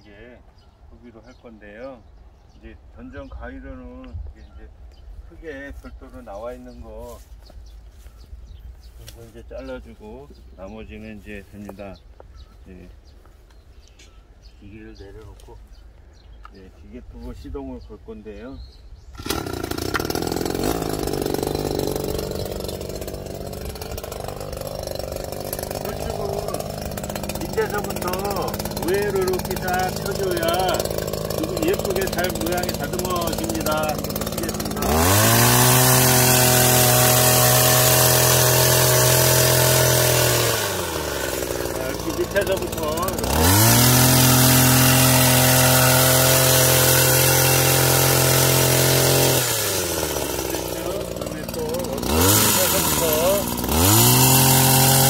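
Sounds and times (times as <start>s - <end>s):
hedge trimmer petrol engine running: 19.0s - 55.0s.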